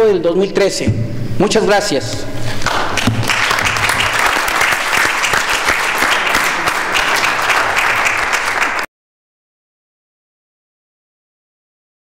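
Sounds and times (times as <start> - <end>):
crowd applauding: 2.6 - 8.9.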